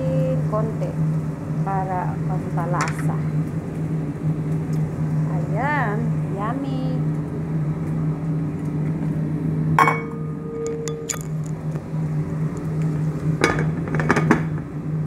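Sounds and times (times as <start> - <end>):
low hum: 0.0 - 15.0
metal cookware clinking: 9.8 - 11.6.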